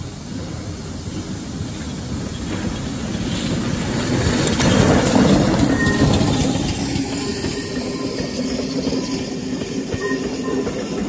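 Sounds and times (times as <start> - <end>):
steam locomotive rumble: 0.0 - 11.0.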